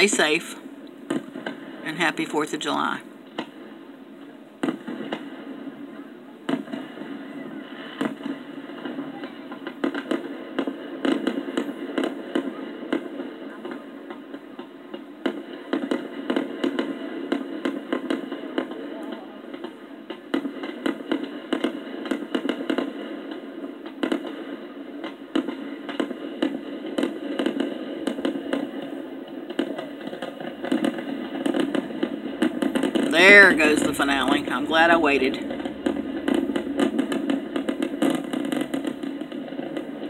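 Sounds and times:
fireworks bangs and crackles: 0.0s - 40.0s
continuous rumble: 28.7s - 40.0s.

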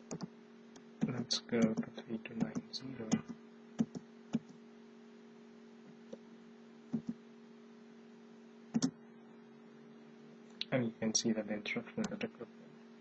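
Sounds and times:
low electrical hum: 0.0s - 13.0s
computer keyboard keystrokes: 1.6s - 4.5s.

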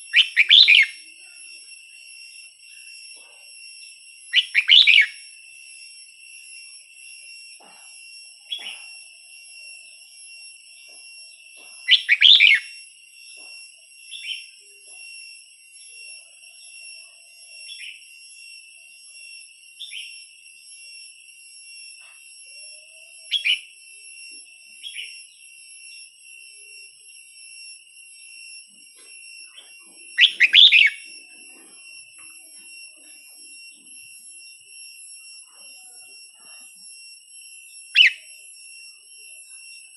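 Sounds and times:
bird calling: 0.0s - 1.0s, 4.3s - 5.2s, 11.8s - 12.7s, 23.3s - 23.7s, 29.6s - 31.8s, 38.0s - 38.2s
short bird chirps: 30.2s - 31.0s.

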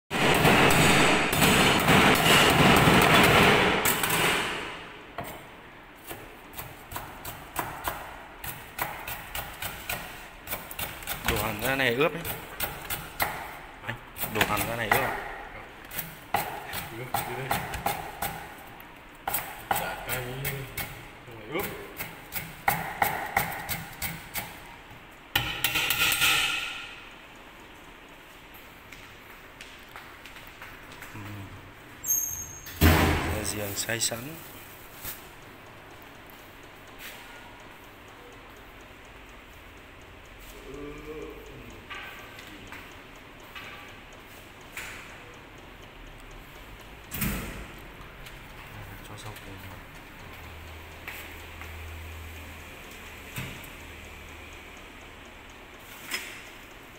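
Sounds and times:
knife chopping on wooden board: 6.0s - 13.6s, 14.2s - 15.4s, 16.0s - 18.6s, 19.2s - 24.5s
cleaver chopping on wooden board: 16.3s - 18.5s.

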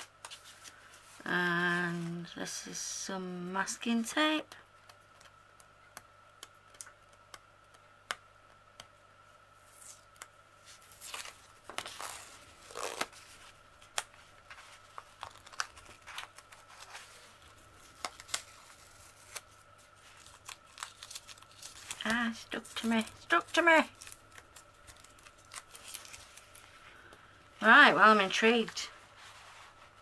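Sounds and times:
masking tape peeling: 9.6s - 14.2s, 14.8s - 26.7s
paper crinkling: 9.6s - 27.1s.

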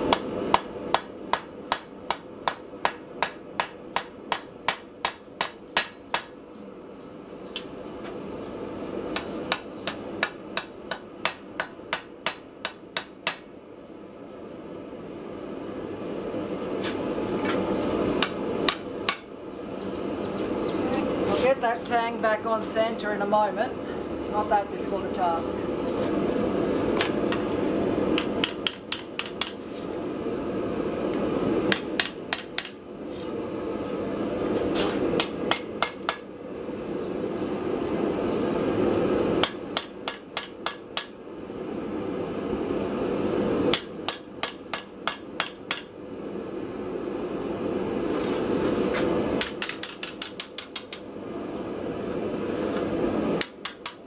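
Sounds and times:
hammer striking steel on anvil: 39.4s - 41.1s, 43.7s - 45.9s, 53.4s - 54.0s.

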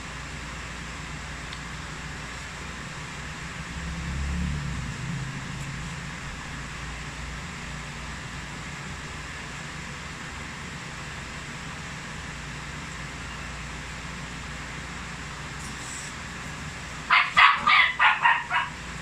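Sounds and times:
machine hum with hiss: 0.0s - 18.1s.

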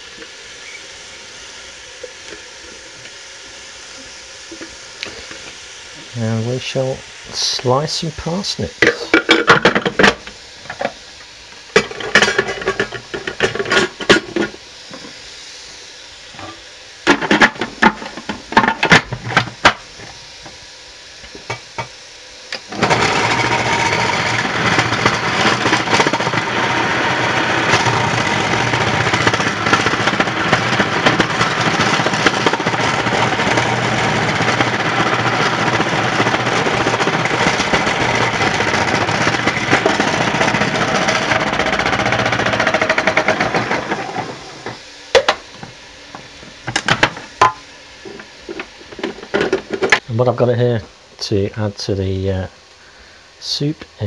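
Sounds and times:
food processor motor slicing: 22.5s - 44.8s.

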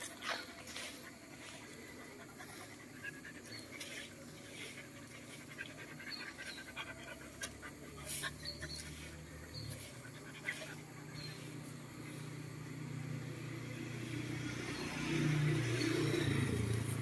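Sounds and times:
dog panting: 0.0s - 12.2s.

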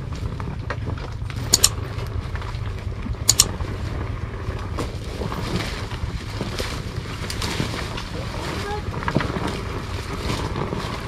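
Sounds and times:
motorcycle engine rumble: 0.0s - 11.0s
sharp double click: 1.5s - 1.8s, 3.3s - 3.5s.

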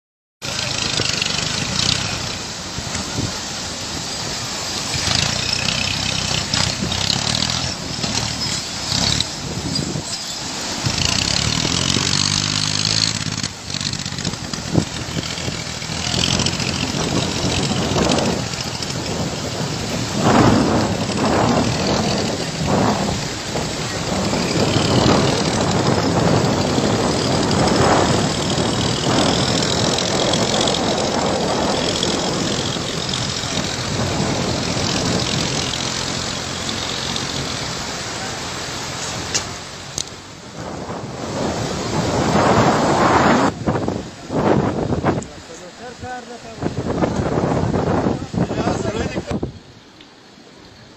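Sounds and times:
tractor engine running: 0.4s - 44.2s.

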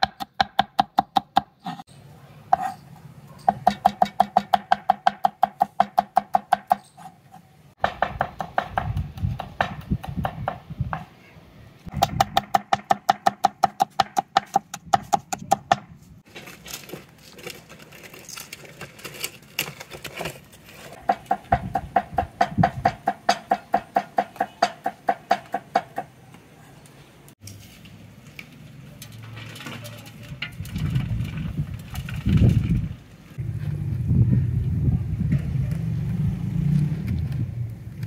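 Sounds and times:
low rumble: 30.6s - 38.0s.

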